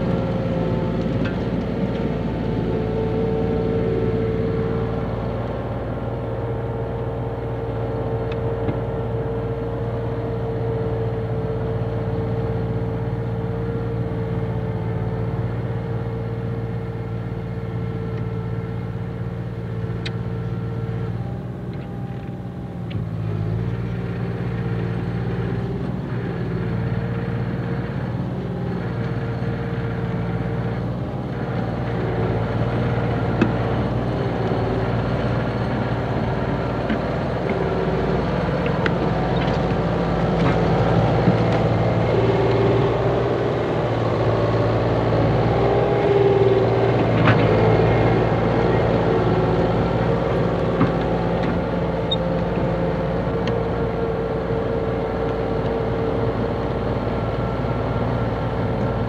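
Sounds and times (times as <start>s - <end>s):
bulldozer engine running: 0.0s - 59.0s.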